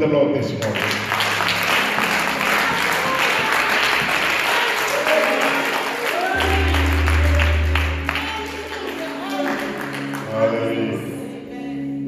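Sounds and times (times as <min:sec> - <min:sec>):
congregation clapping: 0:00.5 - 0:10.8
keyboard bass chord: 0:06.4 - 0:12.0.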